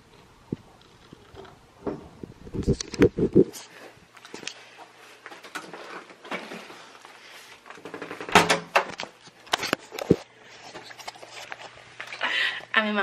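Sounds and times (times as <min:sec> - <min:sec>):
door clicks and knocks: 0:07.9 - 0:09.0.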